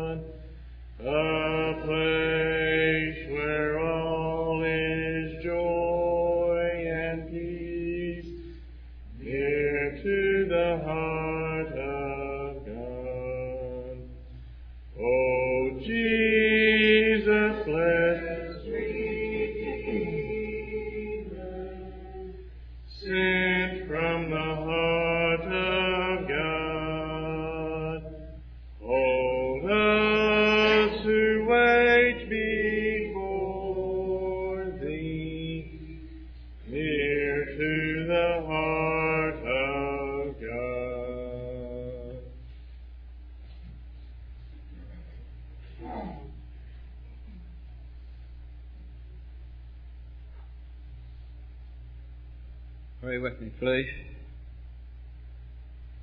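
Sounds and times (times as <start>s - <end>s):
congregation singing a cappella: 0.0s - 42.6s
low electrical hum: 0.0s - 56.0s.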